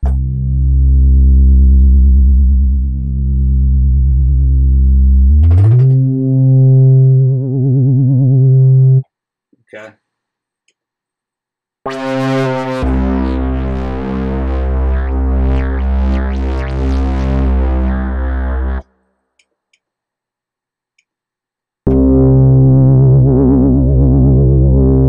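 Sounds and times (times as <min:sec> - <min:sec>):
deep sub-bass: 0:00.0 - 0:09.0, 0:11.9 - 0:18.8, 0:21.9 - 0:25.0
wobbling synth bass: 0:00.0 - 0:09.0, 0:11.9 - 0:18.9, 0:21.9 - 0:25.0.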